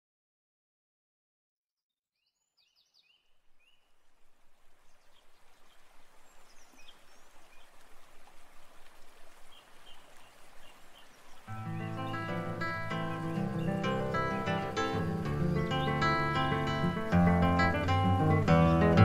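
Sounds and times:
bird chirps: 0:02.2 - 0:04.0, 0:04.8 - 0:07.8, 0:09.5 - 0:19.0.

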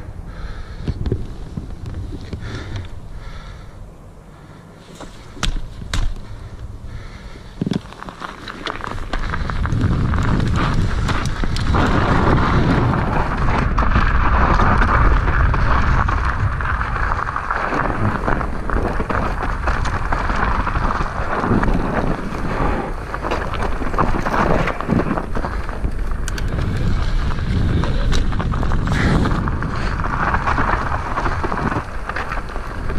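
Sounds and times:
bike clicks and rattles: 0:04.8 - 0:32.9
wind on microphone: 0:09.2 - 0:32.9.

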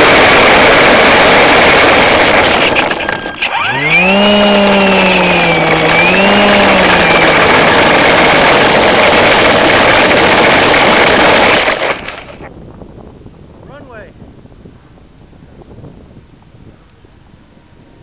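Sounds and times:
model airplane motor whine: 0:00.0 - 0:12.5.

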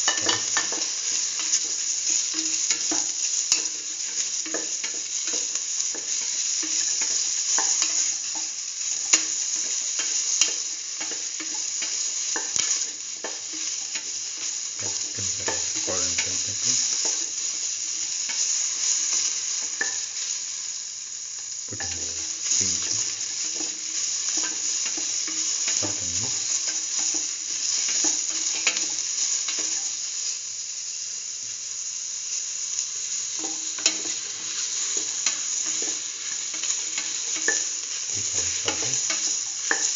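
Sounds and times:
utensil clicking against pan: 0:00.0 - 0:17.5, 0:33.4 - 0:39.9
vegetables sizzling in oil: 0:00.0 - 0:39.9.

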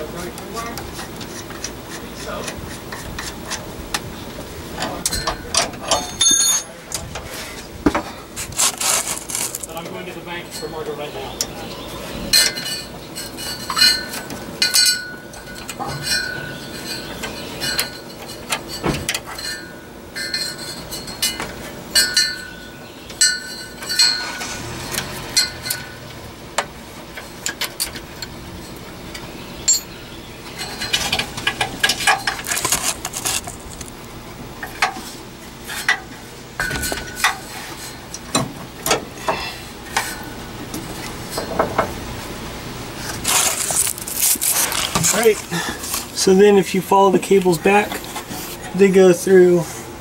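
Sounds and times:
metal cable ends clinking: 0:04.8 - 0:07.0, 0:12.3 - 0:22.6, 0:23.2 - 0:26.0, 0:29.6 - 0:34.0.

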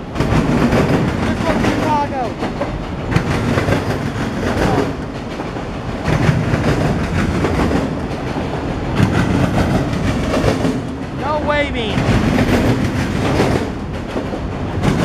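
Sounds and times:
train wheels rumbling on rails: 0:00.0 - 0:15.0
wheels clacking over rail joints: 0:00.0 - 0:15.0.

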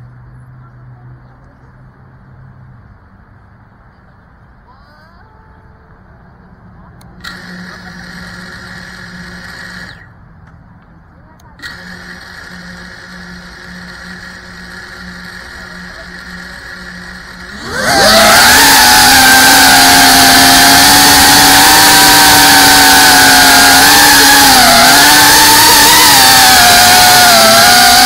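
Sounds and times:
drone motors buzzing whine: 0:07.1 - 0:10.3, 0:11.6 - 0:28.0.

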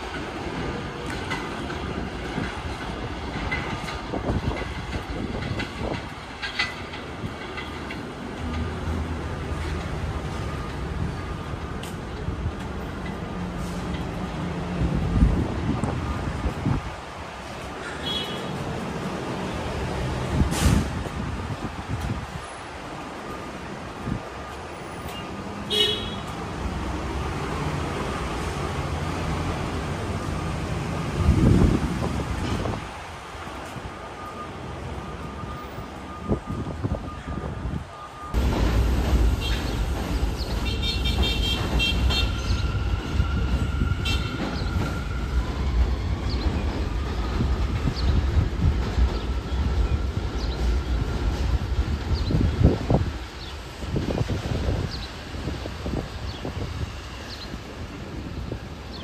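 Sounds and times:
wheels clacking over rails: 0:00.0 - 0:14.7, 0:38.4 - 0:54.2
subway train rumble: 0:00.0 - 0:59.0.

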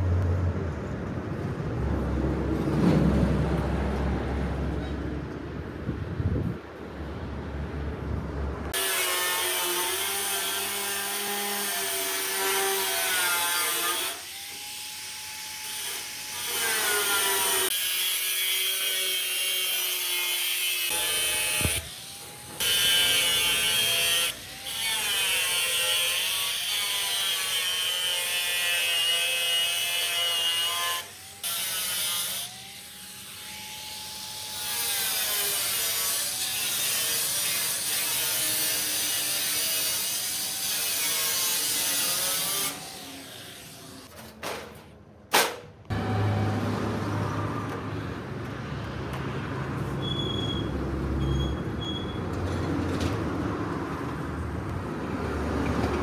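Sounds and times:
angle grinder cutting metal: 0:08.8 - 0:44.1.

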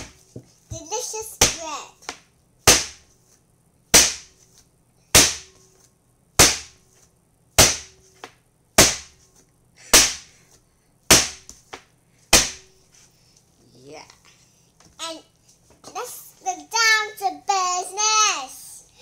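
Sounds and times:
dough slapping on wooden board: 0:01.4 - 0:03.0, 0:03.9 - 0:04.3, 0:05.2 - 0:05.5, 0:06.4 - 0:06.8, 0:07.6 - 0:09.2, 0:11.1 - 0:12.7.

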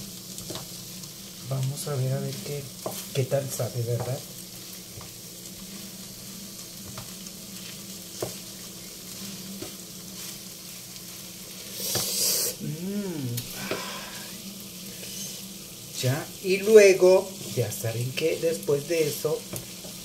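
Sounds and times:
food sizzling in frying pan: 0:00.0 - 0:20.0
spatula tapping pan: 0:02.7 - 0:03.2, 0:06.8 - 0:08.7.

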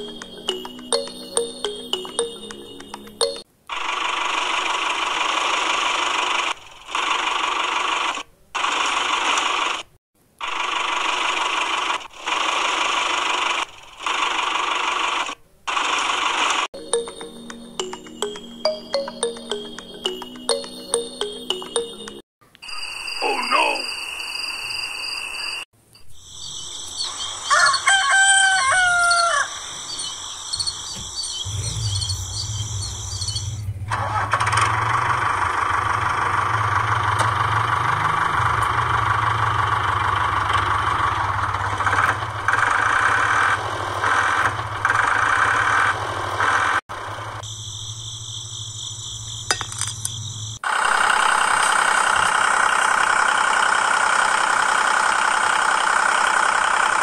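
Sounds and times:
rooster crowing: 0:27.4 - 0:29.7
engine running: 0:31.5 - 0:47.2.

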